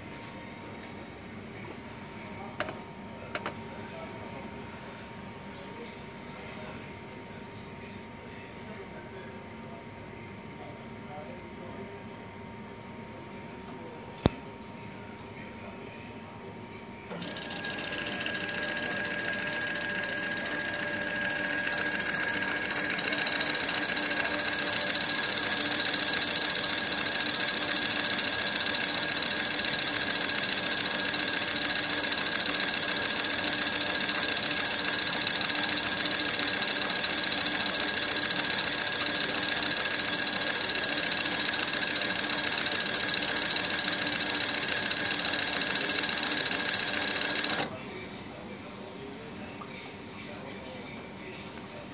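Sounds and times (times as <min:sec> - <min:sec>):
label printer motor whine: 0:17.1 - 0:47.7.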